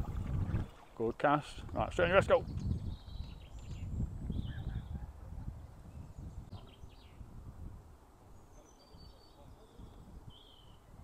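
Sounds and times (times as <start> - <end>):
wind rumbling on microphone: 0.0 - 11.0
bird chirps: 2.5 - 5.0, 8.3 - 11.0.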